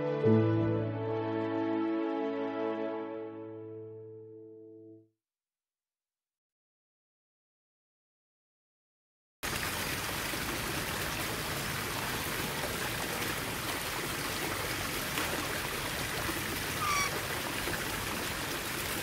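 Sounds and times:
rushing water noise: 9.4 - 19.0
bird chirp: 16.8 - 17.2.

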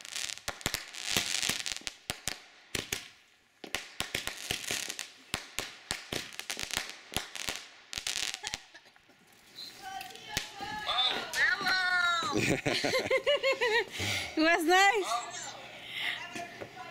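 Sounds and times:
fireworks hissing: 0.0 - 11.4
fireworks popping and crackling: 0.0 - 12.6.

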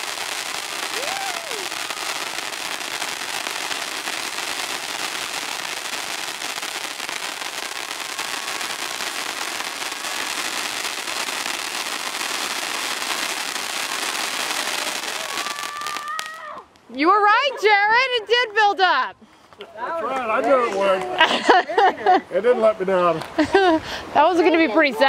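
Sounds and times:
fireworks hissing and crackling: 0.0 - 17.5, 23.0 - 25.0.

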